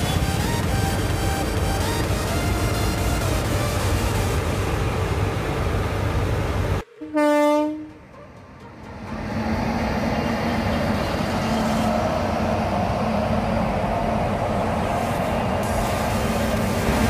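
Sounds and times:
locomotive rumbling past: 0.0s - 17.0s
train horn blast: 6.8s - 8.2s.

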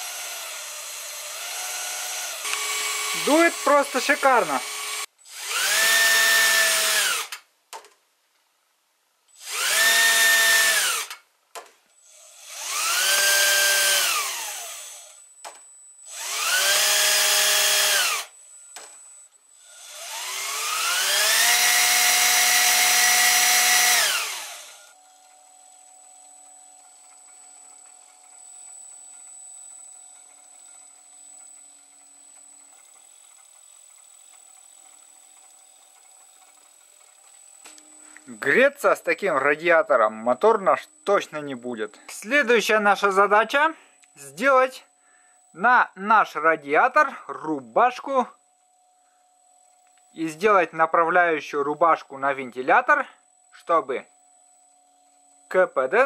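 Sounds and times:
electric motor whine: 0.0s - 7.3s, 9.4s - 11.2s, 12.0s - 18.8s, 19.6s - 38.4s
faint steady high tone: 24.7s - 32.8s, 37.6s - 56.0s.

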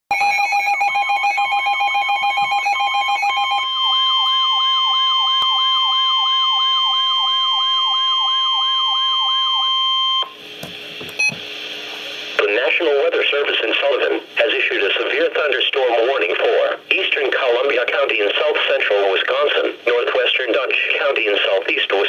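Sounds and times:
warbling high alarm tone: 0.1s - 10.4s
faint radio hiss: 11.6s - 22.0s.

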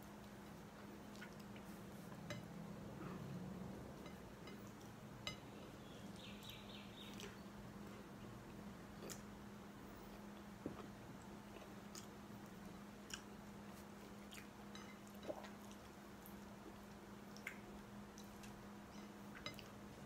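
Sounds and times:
faint steady hum: 0.0s - 20.0s
person chewing: 9.0s - 9.3s.

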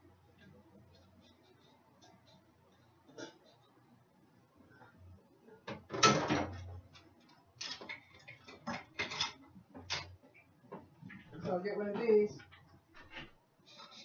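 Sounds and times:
kitchen items clattering: 7.6s - 10.2s.

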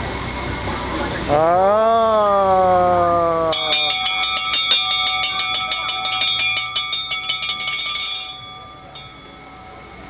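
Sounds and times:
bell rung rapidly: 3.5s - 9.7s.

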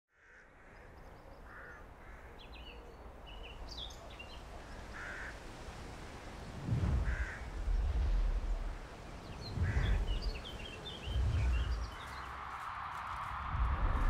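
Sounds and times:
crows cawing: 0.1s - 2.5s, 4.6s - 5.5s, 7.0s - 7.6s, 9.6s - 10.5s
low rumble: 6.6s - 12.4s, 13.4s - 14.0s
deep rumbling swell: 6.6s - 12.6s
small birds chirping: 7.1s - 12.7s.

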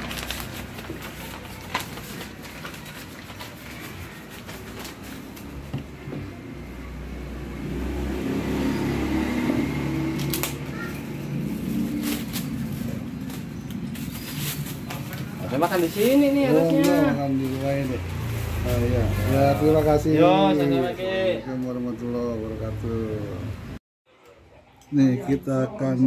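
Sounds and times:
wrapping paper crackling: 0.0s - 5.6s, 10.2s - 18.8s
plastic bag rustling: 0.0s - 5.7s, 10.8s - 19.4s.

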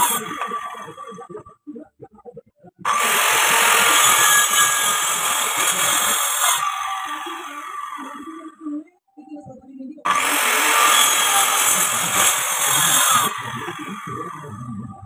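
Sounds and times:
circular saw cutting wood: 0.0s - 1.2s, 2.9s - 8.4s, 10.1s - 14.7s.

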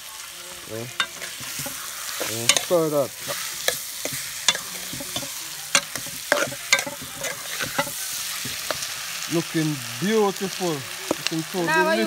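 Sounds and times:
food sizzling in a pot: 0.0s - 12.0s
spoon scraping a pot: 1.0s - 8.9s.

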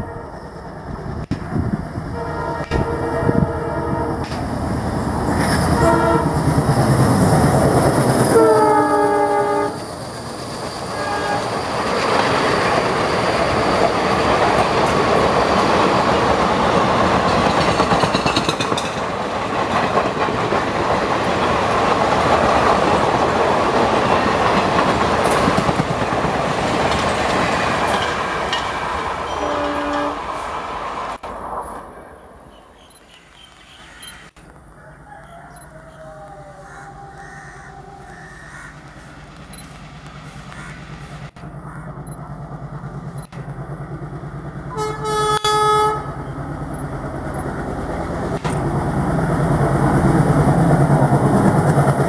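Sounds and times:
locomotive horn: 0.0s - 0.6s, 2.1s - 4.4s, 5.6s - 6.5s, 8.3s - 9.8s, 10.9s - 11.6s, 29.3s - 30.3s, 44.7s - 46.2s
train wheels clickety-clack: 4.2s - 9.2s, 9.8s - 30.1s.

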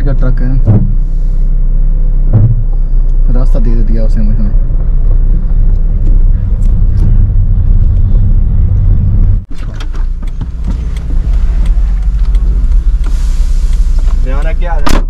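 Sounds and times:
car engine and road rumble: 0.0s - 15.0s
passenger climbing out: 4.7s - 14.9s.

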